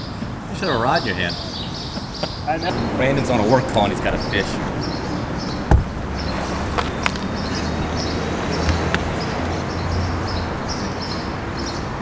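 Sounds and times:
low steady rumble: 2.7s - 8.3s
hollow thump: 5.7s - 7.2s.

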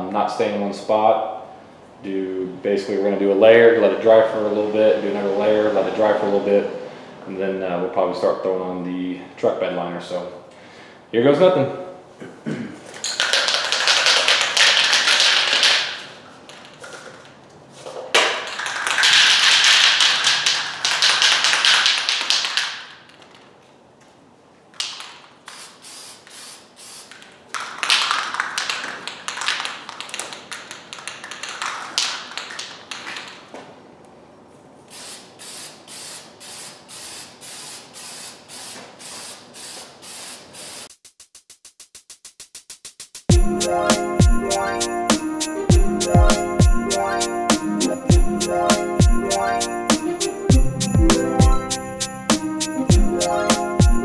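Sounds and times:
spray can mixing ball rattling: 12.9s - 17.4s, 18.1s - 23.4s, 24.8s - 33.5s, 34.9s - 43.3s
aerosol spray can hissing: 25.5s - 27.2s, 34.9s - 43.3s.

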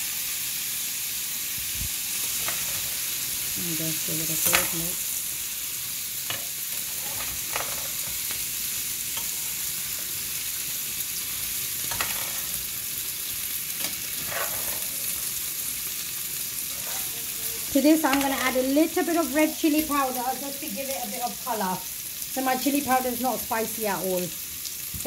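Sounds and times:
potatoes sizzling in pan: 0.0s - 25.0s
spatula scraping pan: 2.2s - 3.1s, 6.3s - 10.3s, 11.7s - 12.8s, 13.8s - 15.5s, 16.6s - 18.8s.

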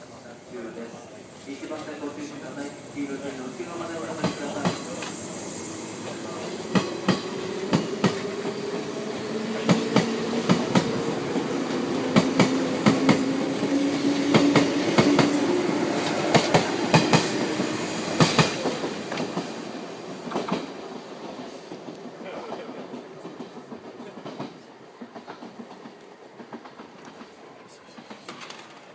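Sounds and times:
train wheels clicking on rail joints: 3.2s - 28.9s.

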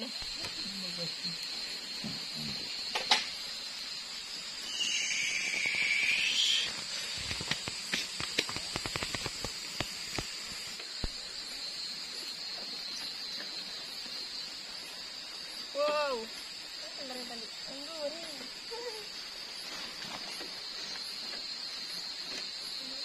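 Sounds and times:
charcoal fire hiss: 0.0s - 23.0s
crackles and pops on coals: 1.3s - 3.6s, 4.4s - 11.3s.

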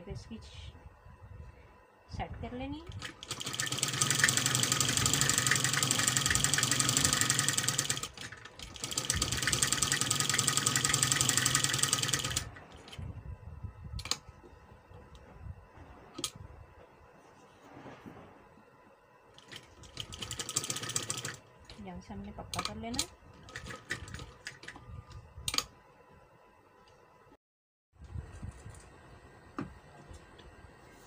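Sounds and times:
sewing machine stitching: 2.9s - 12.6s, 19.4s - 21.4s.

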